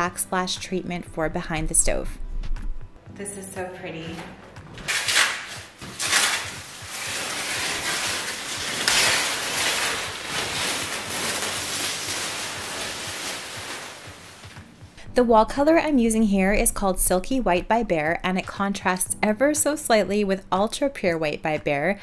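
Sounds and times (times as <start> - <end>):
plastic sheeting ripping: 4.8 - 14.8
plastic sheeting crinkling: 4.9 - 14.9.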